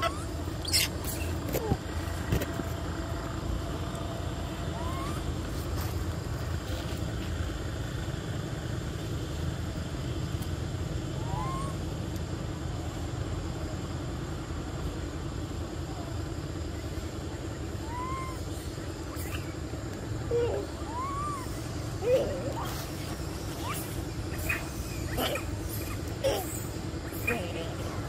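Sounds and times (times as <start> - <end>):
bird chirps: 0.0 - 1.4, 22.6 - 27.4
road traffic rumble: 0.0 - 28.0.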